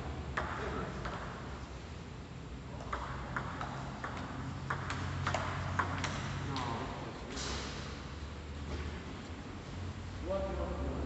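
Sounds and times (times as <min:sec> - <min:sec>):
steady low hum: 0:00.0 - 0:11.0
table tennis ball clicking: 0:02.8 - 0:06.2.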